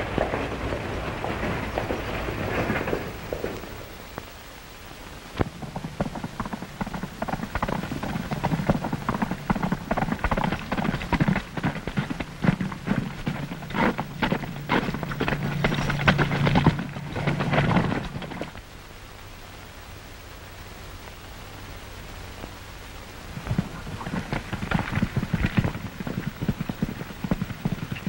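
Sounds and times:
horse hoofbeats on dirt: 0:00.0 - 0:04.3, 0:05.4 - 0:18.7, 0:23.3 - 0:28.0
rain-like noise: 0:00.0 - 0:28.0.

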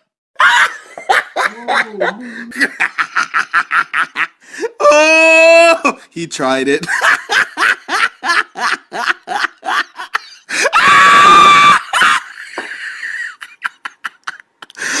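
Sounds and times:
person laughing: 0:00.4 - 0:04.4, 0:06.8 - 0:10.8, 0:11.4 - 0:15.0
person screaming: 0:04.8 - 0:06.0, 0:10.6 - 0:12.2.

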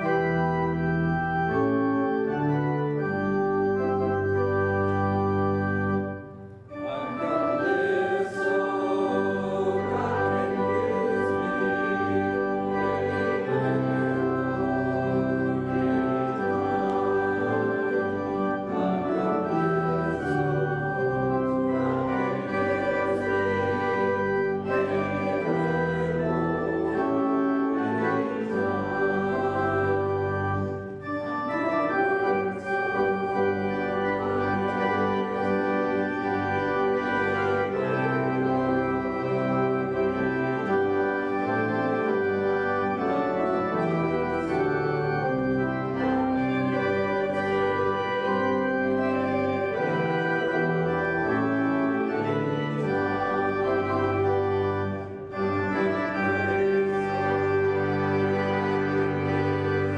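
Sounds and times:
church organ chords: 0:00.0 - 0:59.9.

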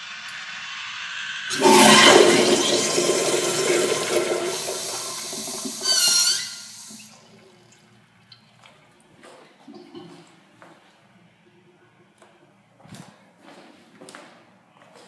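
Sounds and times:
high whistling squeal: 0:00.0 - 0:07.1
urinal flushing: 0:00.0 - 0:08.6.

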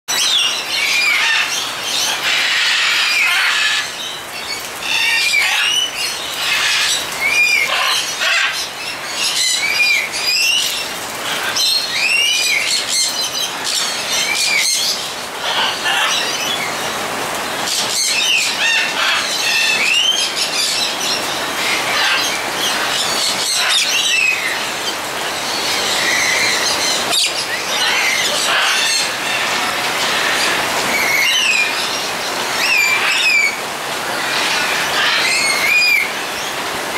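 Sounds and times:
bird chirps and squeals: 0:00.1 - 0:16.8, 0:17.7 - 0:36.6
rain hiss: 0:00.1 - 0:36.9.

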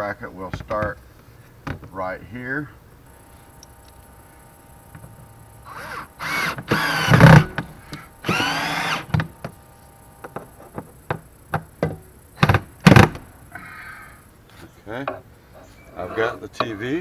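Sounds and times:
cordless drill on metal bracket: 0:05.7 - 0:09.3.

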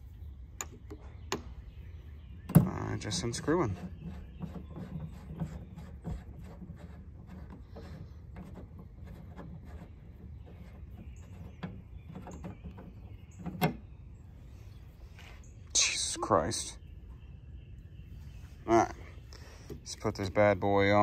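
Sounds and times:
antenna mast clicks and scrapes: 0:02.4 - 0:14.0.

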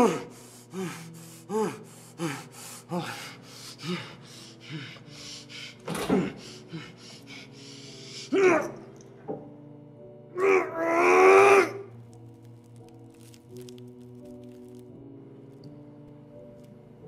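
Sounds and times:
person gasping and whimpering: 0:00.0 - 0:08.8.

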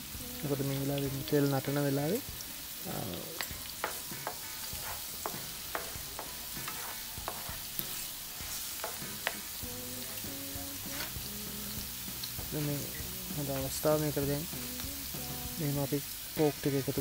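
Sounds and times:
food sizzling in hot oil: 0:00.0 - 0:17.0
spatula scraping a pan: 0:03.4 - 0:10.2, 0:10.8 - 0:11.2, 0:16.4 - 0:17.0.

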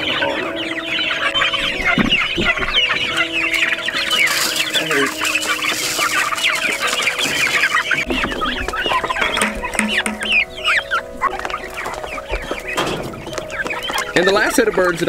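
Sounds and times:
chicks cheeping: 0:00.0 - 0:15.0
thumps: 0:09.2 - 0:10.5.

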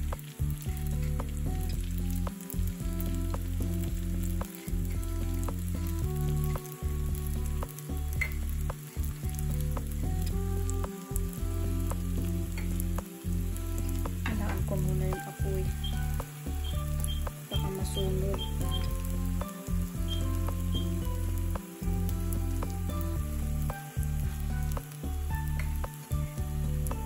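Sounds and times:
food sizzling in oil: 0:00.0 - 0:27.0
low hum: 0:00.0 - 0:27.0.

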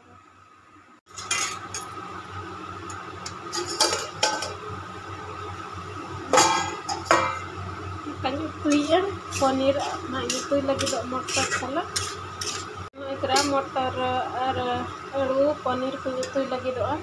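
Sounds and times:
cookware and utensils clinking: 0:01.1 - 0:02.0, 0:03.5 - 0:04.6, 0:06.3 - 0:07.5, 0:08.7 - 0:13.6.

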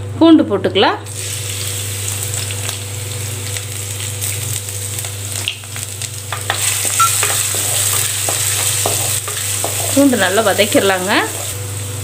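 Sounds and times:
garlic sizzling in oil: 0:01.1 - 0:12.0
wooden spatula scraping pot: 0:07.2 - 0:10.2.

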